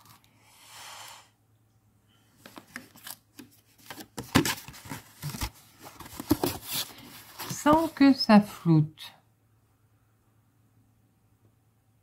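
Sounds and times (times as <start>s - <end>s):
rustling and clicking of packet: 2.4s - 8.0s.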